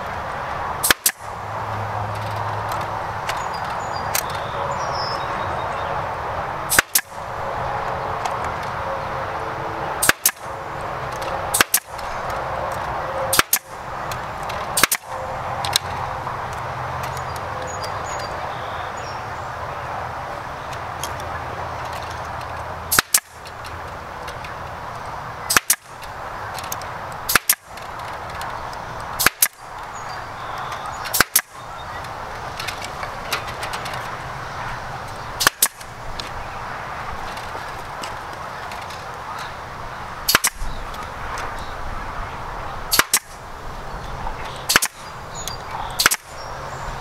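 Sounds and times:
pneumatic stapler firing: 0.8 - 1.2, 6.7 - 7.1, 10.0 - 10.4, 11.5 - 12.0, 13.3 - 13.7, 14.8 - 15.1, 22.9 - 23.3, 25.5 - 25.9, 27.3 - 27.7, 29.2 - 29.6, 31.1 - 31.5, 35.4 - 35.9, 40.3 - 40.6, 42.9 - 43.4, 44.7 - 45.0, 46.0 - 46.3.

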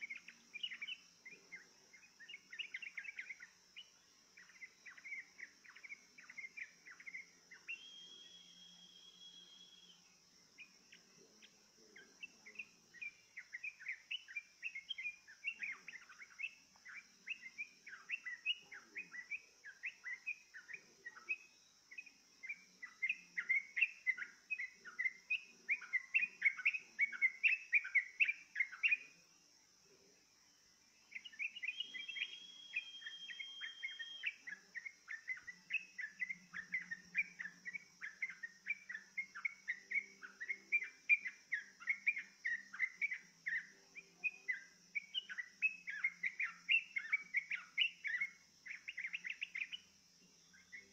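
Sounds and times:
bird chirping: 0.0 - 50.9
steady high hiss: 0.0 - 50.9
high bird whistle: 7.6 - 10.0, 31.4 - 38.4.

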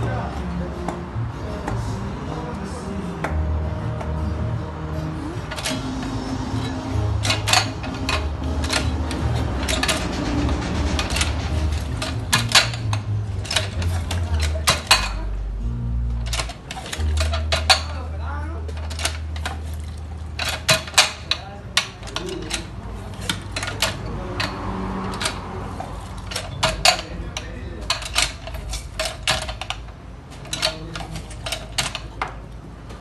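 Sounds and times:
citrus press metal clacks: 5.5 - 15.3, 16.2 - 18.0, 18.7 - 32.4.

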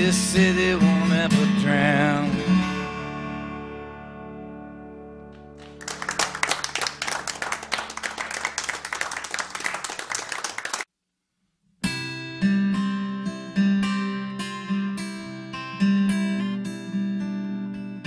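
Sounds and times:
acoustic guitar: 0.0 - 8.0, 11.8 - 18.0
audience applauding: 5.4 - 10.9.

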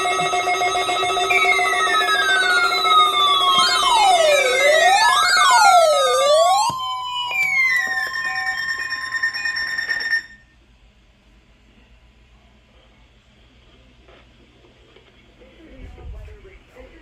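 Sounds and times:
falling tones: 0.0 - 10.4
sweeping siren-like alarm tone: 0.0 - 10.5
steady alarm tones: 0.0 - 10.6.

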